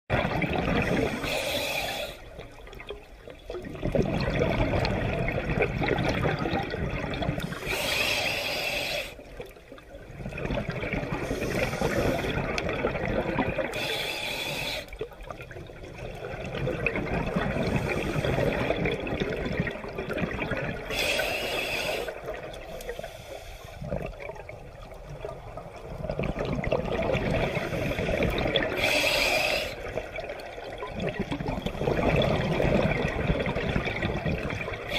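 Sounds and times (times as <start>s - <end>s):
bubbles rushing on exhale: 0.1s - 1.4s, 2.2s - 7.9s, 10.0s - 13.9s, 15.0s - 21.2s, 23.8s - 34.9s
regulator hiss on inhale: 0.8s - 2.4s, 7.4s - 9.3s, 11.2s - 12.4s, 13.7s - 15.0s, 17.6s - 18.6s, 20.9s - 24.0s, 27.4s - 30.0s.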